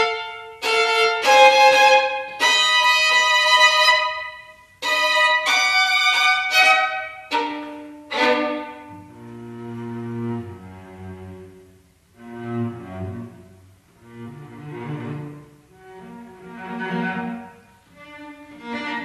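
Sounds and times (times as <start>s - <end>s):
high held violin notes: 0.0s - 9.4s
low held cello notes: 0.0s - 19.0s.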